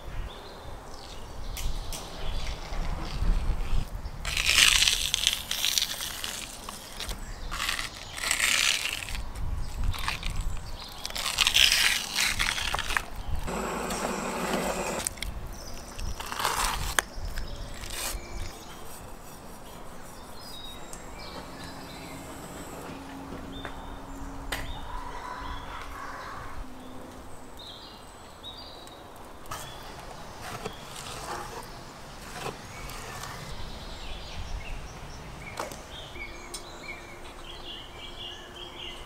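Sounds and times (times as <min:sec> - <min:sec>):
membrane tearing off liver: 0:04.3 - 0:13.2.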